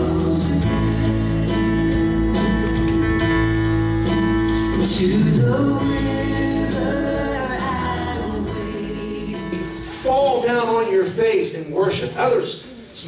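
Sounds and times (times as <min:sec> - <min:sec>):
man singing: 0:00.0 - 0:02.2, 0:04.6 - 0:10.8
live band with guitars: 0:00.0 - 0:10.0.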